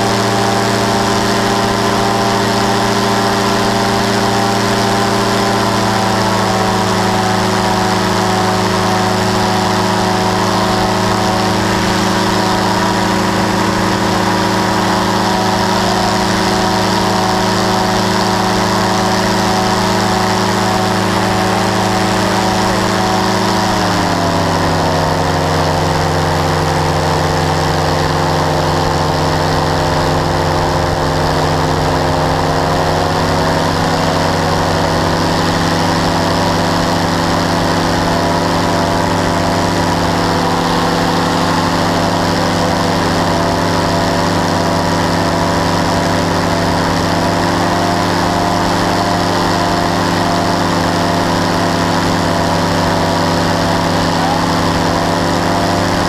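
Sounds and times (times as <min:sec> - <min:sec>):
engine and propeller running: 0:00.0 - 0:56.0.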